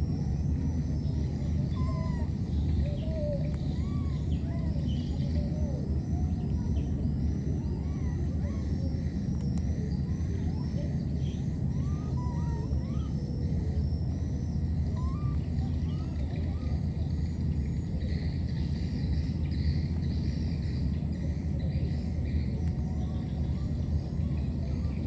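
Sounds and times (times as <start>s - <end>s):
steady low rumble: 0.0s - 25.0s
high chirping: 9.8s - 16.7s.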